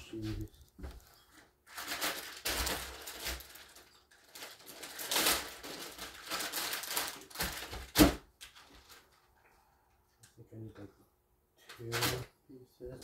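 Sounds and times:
packaging rustling: 0:00.4 - 0:09.3.

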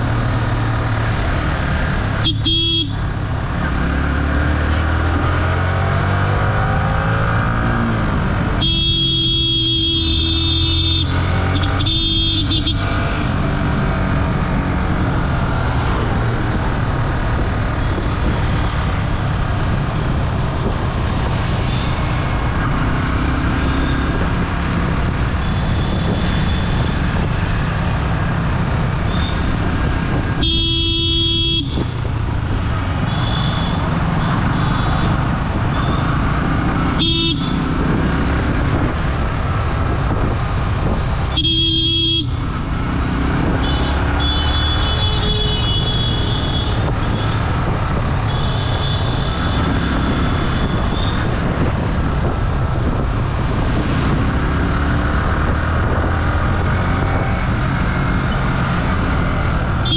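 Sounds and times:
motorcycle engine and road noise: 0:00.0 - 0:59.9
vehicle horn honking: 0:02.2 - 0:03.0, 0:08.6 - 0:12.8, 0:30.4 - 0:31.8, 0:37.0 - 0:37.6, 0:41.3 - 0:42.3, 0:43.6 - 0:47.3.

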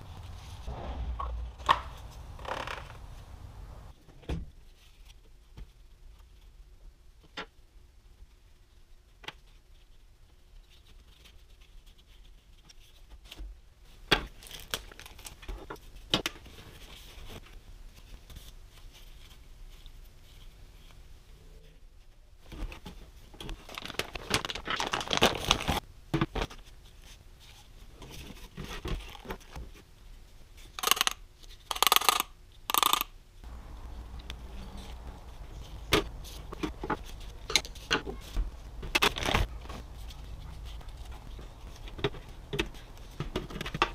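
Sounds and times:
plastic packaging crinkling: 0:14.4 - 0:15.5, 0:23.5 - 0:25.8.

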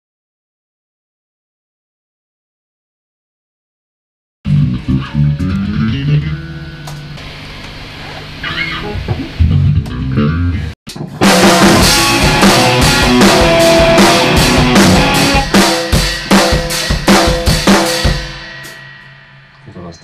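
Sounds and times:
heavy rock music: 0:04.5 - 0:07.4, 0:08.4 - 0:19.6
low guitar notes: 0:04.5 - 0:07.4, 0:08.2 - 0:19.8
drum kick and snare hits: 0:11.2 - 0:18.8.

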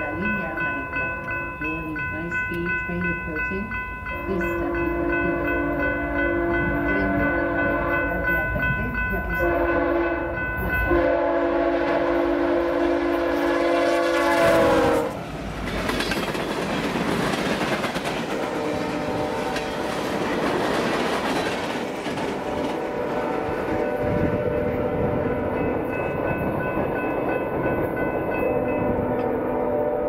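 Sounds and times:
faint locomotive engine hum: 0:00.0 - 0:30.0
train air horn blasts: 0:04.6 - 0:08.2, 0:09.4 - 0:15.2, 0:18.3 - 0:20.0, 0:22.3 - 0:25.8, 0:28.6 - 0:30.0
train wheels rumbling and clattering: 0:11.9 - 0:29.5.

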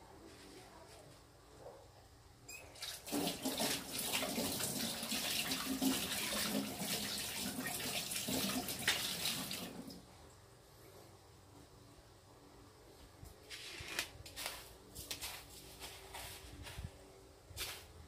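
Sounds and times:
tap water running into sink: 0:02.8 - 0:10.0.

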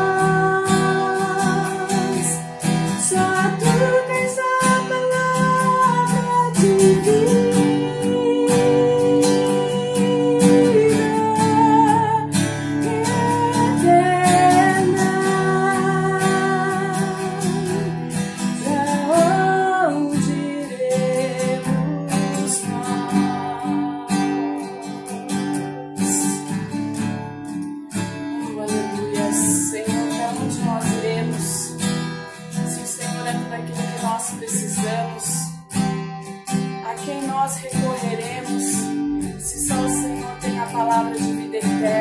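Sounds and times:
woman singing: 0:00.0 - 0:27.3, 0:27.9 - 0:42.0
acoustic guitar strumming: 0:00.0 - 0:42.0.

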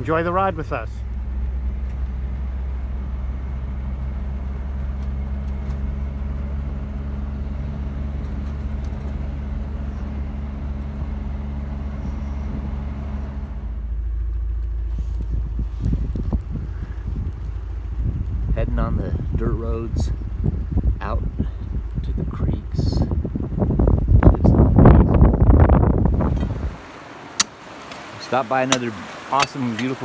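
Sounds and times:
deep even rumble: 0:00.0 - 0:27.0
vehicle engine droning: 0:00.0 - 0:30.0.

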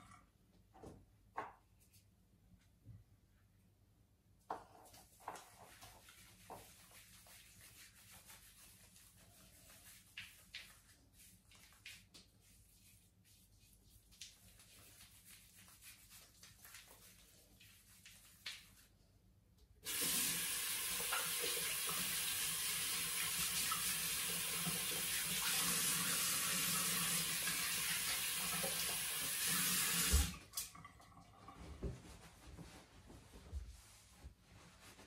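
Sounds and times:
hands rubbing foam on scalp: 0:04.8 - 0:19.0
water running into sink: 0:19.9 - 0:31.4.

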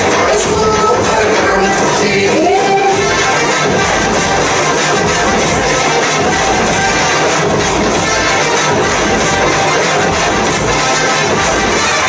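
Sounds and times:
loud film song: 0:00.0 - 0:12.0.

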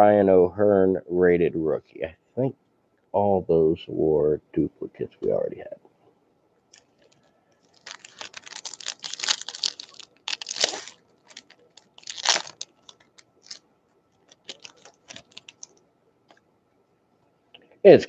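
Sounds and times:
wrapper tearing and crinkling: 0:06.8 - 0:13.6, 0:14.2 - 0:15.8.

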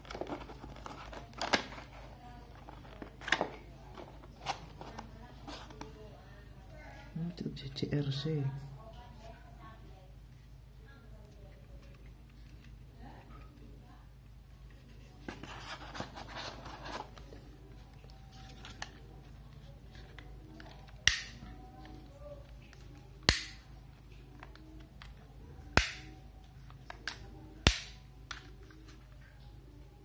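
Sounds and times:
handling rustle: 0:00.0 - 0:06.1, 0:14.7 - 0:21.0
sharp plastic snaps: 0:20.9 - 0:21.5, 0:23.2 - 0:23.7, 0:25.8 - 0:26.2, 0:26.9 - 0:28.4.

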